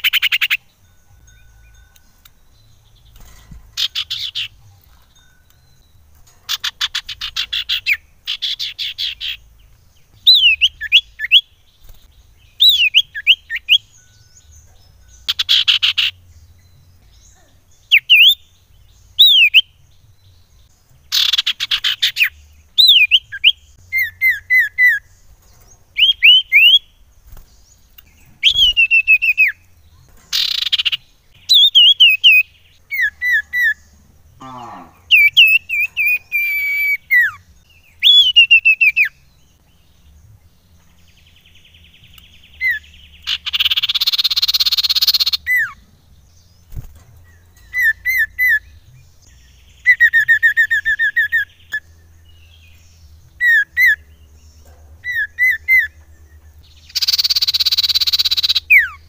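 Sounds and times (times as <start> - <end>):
bird buzzy trills: 0.0 - 59.0
bird whistled notes: 28.4 - 29.7, 35.1 - 37.4, 38.0 - 39.2, 42.7 - 45.8, 56.8 - 59.0.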